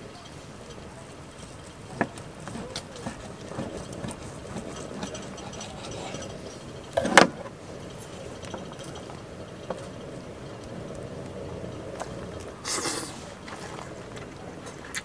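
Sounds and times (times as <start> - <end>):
metal utensils clattering: 2.4 - 7.4.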